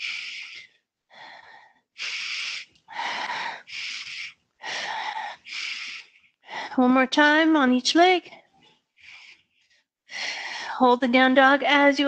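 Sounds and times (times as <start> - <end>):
woman breathing hard: 0.0 - 6.8, 9.0 - 10.8.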